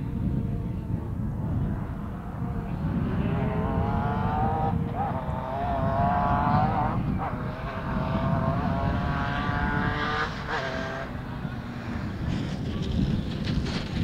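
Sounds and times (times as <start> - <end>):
rally car engine accelerating: 0.3 - 14.0.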